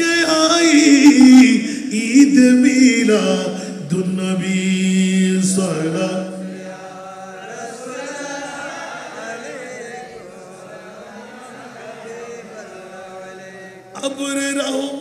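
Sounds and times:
men chanting over loudspeakers: 3.2s - 15.0s.

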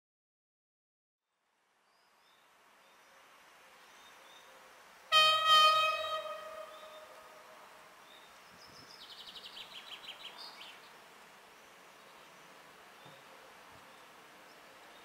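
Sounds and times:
songbird trill: 3.8s - 15.0s
locomotive air horn blast: 5.1s - 7.6s.

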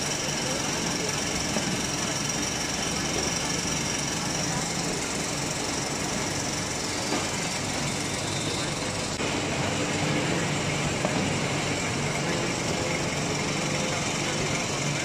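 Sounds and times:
hydraulic press machine din: 0.0s - 15.0s.

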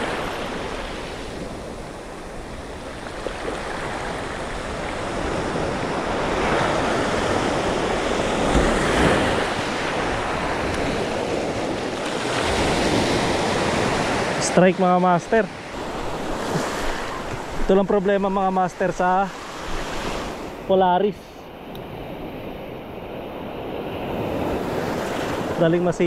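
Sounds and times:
wind rumbling on microphone: 0.0s - 14.5s.

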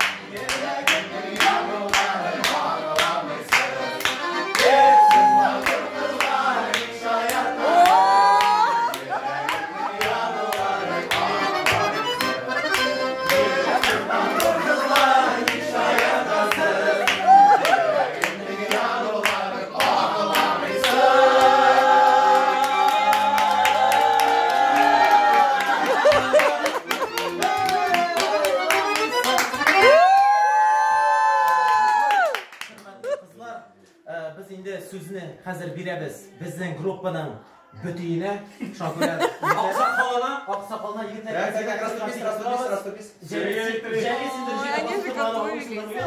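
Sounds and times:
button accordion playing a tune: 0.0s - 7.8s, 8.6s - 17.1s, 17.9s - 23.1s, 24.8s - 29.9s
people clapping in time: 0.0s - 33.2s
men singing along: 0.2s - 12.2s, 13.2s - 22.9s.

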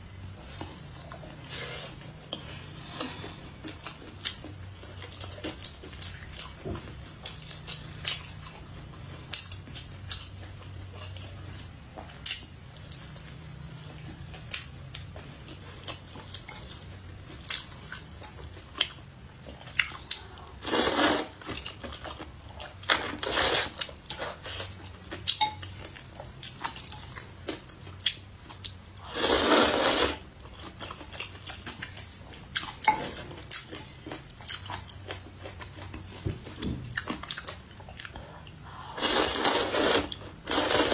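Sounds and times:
slurping noodles: 20.6s - 21.4s, 29.0s - 30.2s, 38.9s - 40.9s.

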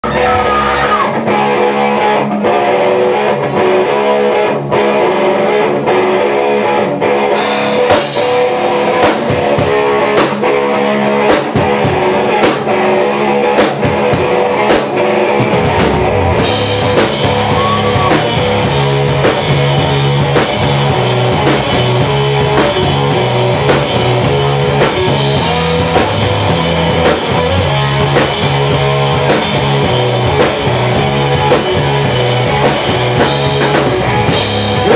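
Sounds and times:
drums: 0.0s - 34.9s
electric guitar riff: 0.0s - 34.9s
deep low end bass: 15.4s - 34.9s.

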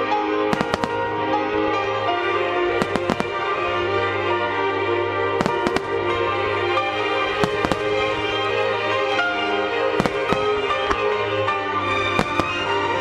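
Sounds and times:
firework shell bursts: 0.5s - 1.1s, 2.8s - 3.5s, 5.4s - 6.1s, 7.4s - 8.4s, 10.0s - 11.1s, 12.1s - 12.9s.

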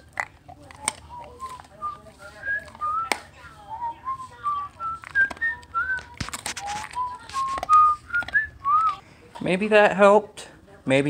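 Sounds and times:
dog crunching a biscuit: 0.0s - 9.8s
person whistling a tune: 1.1s - 9.0s.

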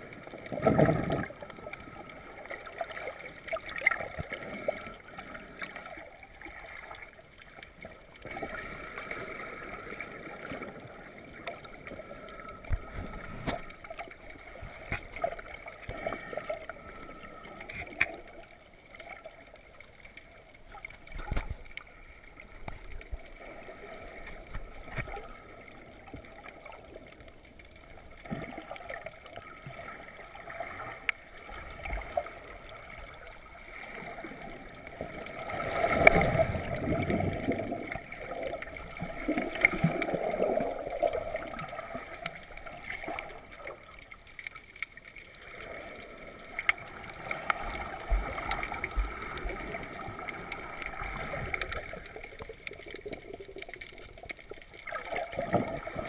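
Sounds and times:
rush of bubbles: 0.0s - 7.2s, 8.1s - 19.4s, 27.8s - 44.6s, 45.2s - 56.0s
muffled underwater water wash: 0.0s - 56.0s
small clicks and knocks: 17.6s - 18.5s.

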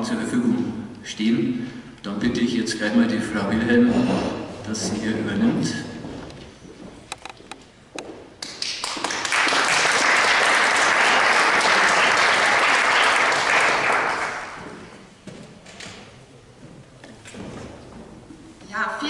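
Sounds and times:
audience applauding: 8.4s - 15.0s.

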